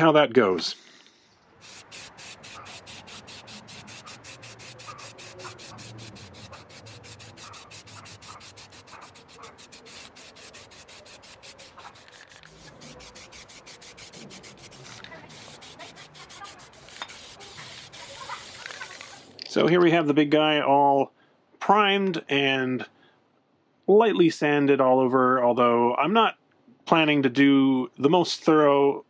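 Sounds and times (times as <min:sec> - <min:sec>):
aerosol can spraying in pulses: 0:00.8 - 0:19.4.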